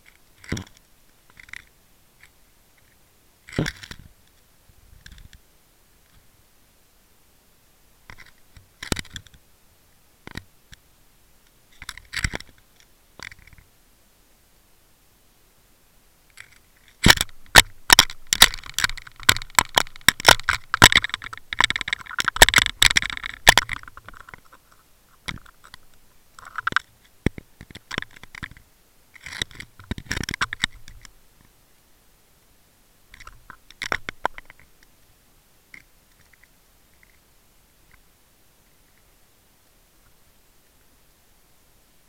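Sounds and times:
underwater crunching and clicking: 0:03.5 - 0:04.1, 0:16.3 - 0:28.6, 0:29.2 - 0:31.2, 0:33.1 - 0:34.8.

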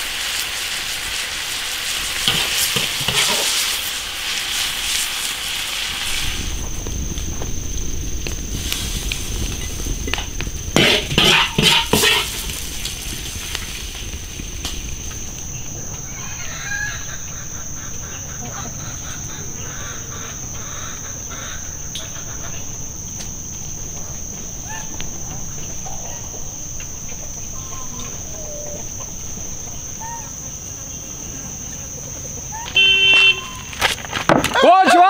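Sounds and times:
high insect drone: 0:00.0 - 0:35.0
chickens clucking: 0:15.7 - 0:33.7.

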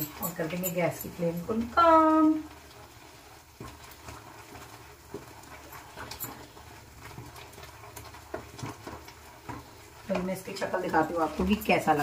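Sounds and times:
spoon stirring in a pan: 0:00.0 - 0:12.0.

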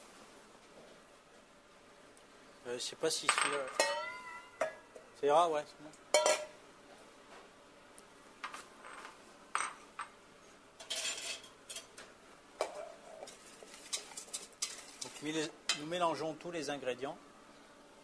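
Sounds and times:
steel bowls and utensils clinking: 0:03.5 - 0:04.8, 0:06.2 - 0:06.5, 0:10.8 - 0:11.9, 0:12.6 - 0:15.8.

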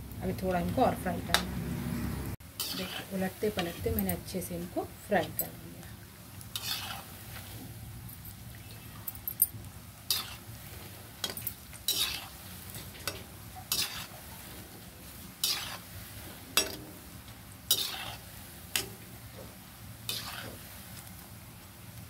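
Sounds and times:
balls deep-frying in hot oil: 0:00.0 - 0:22.0
metal skimmer scraping a pan: 0:02.6 - 0:04.2, 0:06.5 - 0:07.6, 0:10.1 - 0:17.1, 0:17.7 - 0:19.5, 0:20.1 - 0:20.8.

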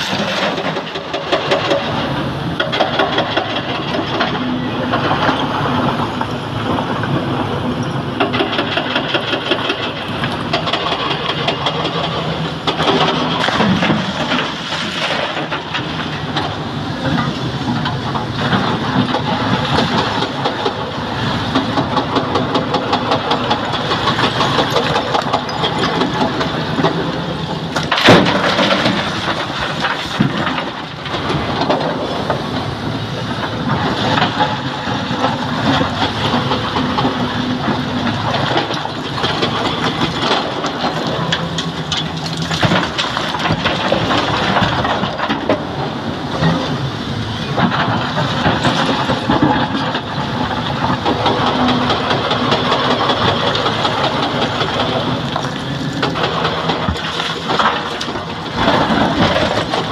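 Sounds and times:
diesel excavator engine: 0:00.0 - 0:59.9
rock grinding and clattering: 0:47.5 - 0:59.9.

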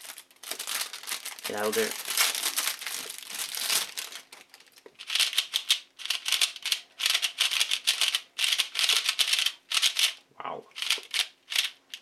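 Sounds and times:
plastic wrapping crinkling: 0:00.0 - 0:05.8
puzzle cube clicking turns: 0:04.8 - 0:12.0.

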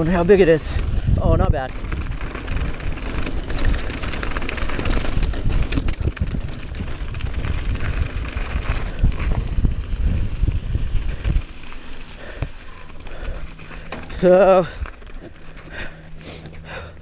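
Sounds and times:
bike tyres crunching on gravel: 0:00.0 - 0:17.0
wind rumble on microphone: 0:00.0 - 0:17.0.

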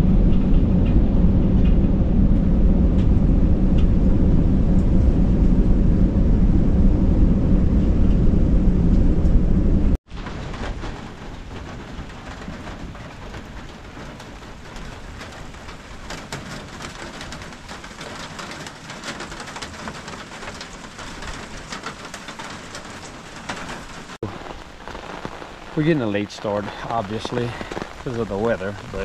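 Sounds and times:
steady rain falling: 0:00.0 - 0:29.0
raindrops ticking on a surface: 0:10.1 - 0:29.0.

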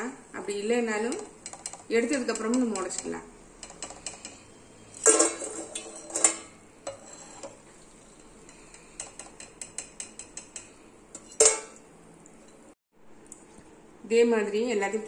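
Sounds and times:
metal skimmer clanking on pan: 0:01.1 - 0:11.8.

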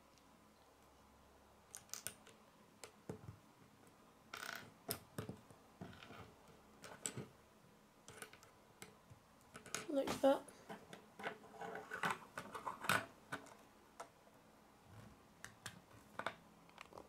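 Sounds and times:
plastic bricks clicking together: 0:01.7 - 0:03.0.

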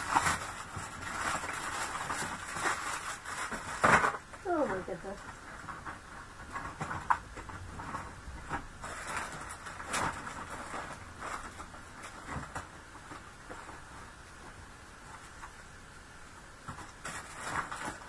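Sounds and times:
rummaging knocks and rustling: 0:00.0 - 0:15.6.

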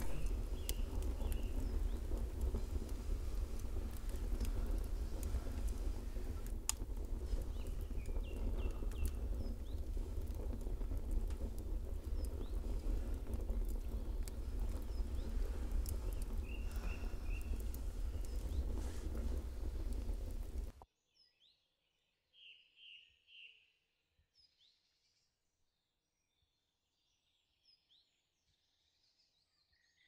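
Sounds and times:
campfire crackling and popping: 0:00.0 - 0:20.8
low rumble of night ambience: 0:00.0 - 0:20.8.

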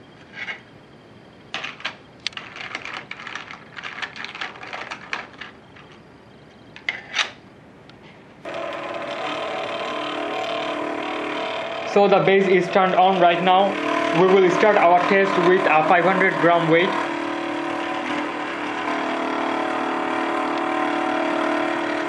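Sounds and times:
plastic clicking and rattling: 0:01.6 - 0:06.0
stepper motor hum: 0:08.4 - 0:22.0.

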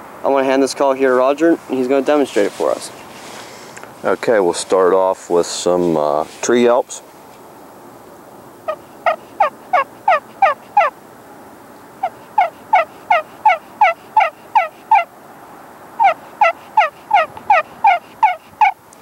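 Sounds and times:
turkey call yelps: 0:08.6 - 0:11.0, 0:12.0 - 0:15.1, 0:16.0 - 0:18.8.

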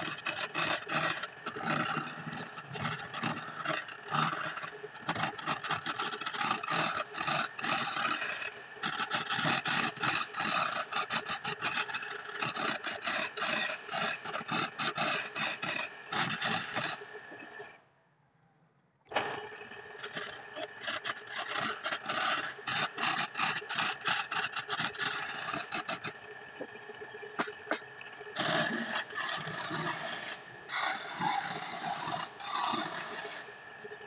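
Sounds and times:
lathe motor hum: 0:00.0 - 0:17.8, 0:19.1 - 0:34.0
wood scraping on lathe: 0:00.0 - 0:17.8, 0:19.1 - 0:34.0.

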